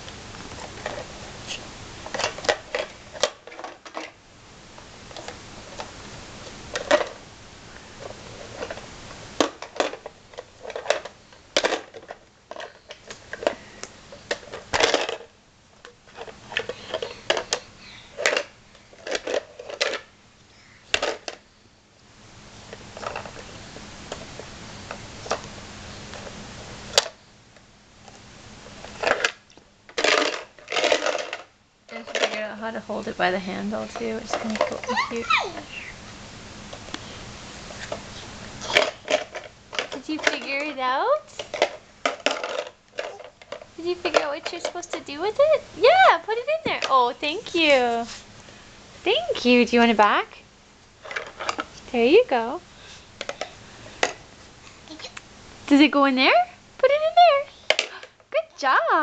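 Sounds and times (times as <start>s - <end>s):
plastic blocks clattering in bucket: 14.3s - 15.3s, 29.0s - 32.6s, 41.4s - 44.9s.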